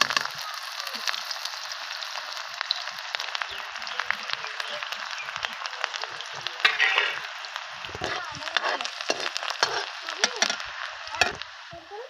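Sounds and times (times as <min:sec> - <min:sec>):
onion sizzling in hot oil: 0:00.0 - 0:12.0
steel ladle stirring: 0:06.6 - 0:07.3, 0:07.9 - 0:11.4.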